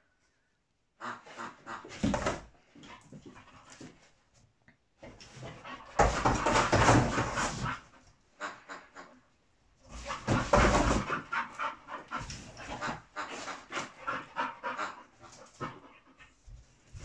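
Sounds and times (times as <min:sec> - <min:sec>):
dog scraping cardboard box: 0:05.3 - 0:07.9, 0:09.9 - 0:14.2
dog noises: 0:09.8 - 0:17.0.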